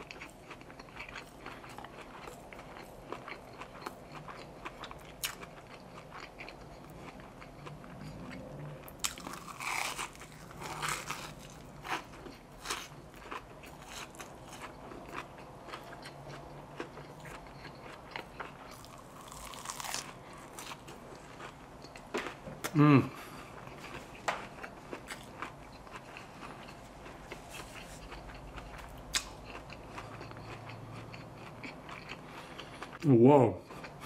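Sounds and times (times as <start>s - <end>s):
crisp chewing crunches: 0.0s - 22.4s.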